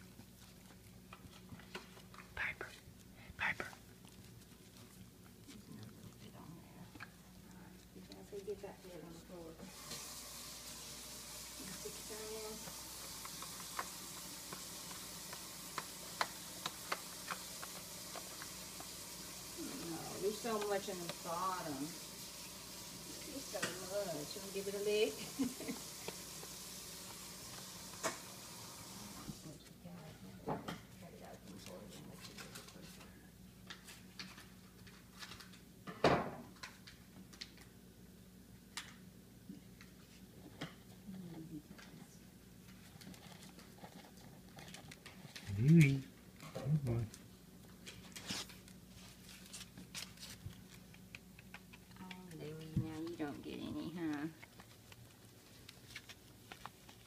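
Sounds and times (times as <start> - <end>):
faint steady hiss: 0.0 - 35.6
dog claws clicking on tile: 13.1 - 18.9, 49.7 - 52.4.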